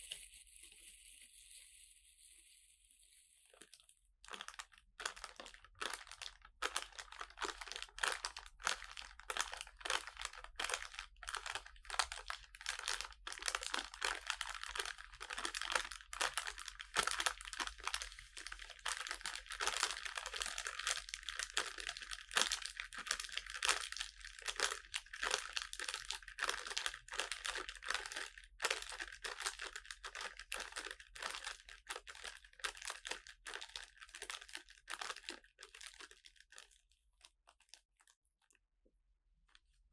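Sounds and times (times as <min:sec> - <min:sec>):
paper crinkling: 0:00.0 - 0:03.8.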